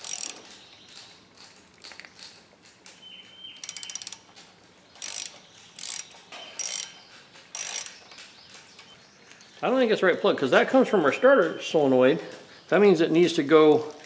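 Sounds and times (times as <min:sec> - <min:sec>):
socket ratchet clicking: 0:00.0 - 0:02.4, 0:03.6 - 0:04.4, 0:05.0 - 0:08.3.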